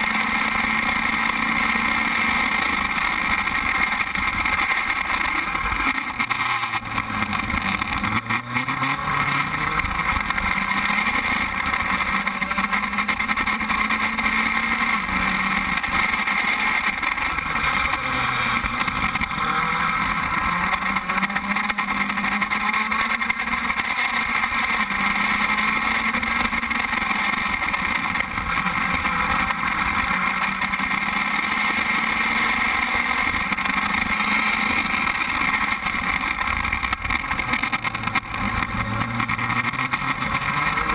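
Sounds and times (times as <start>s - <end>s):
race car engine running: 0.0s - 40.9s.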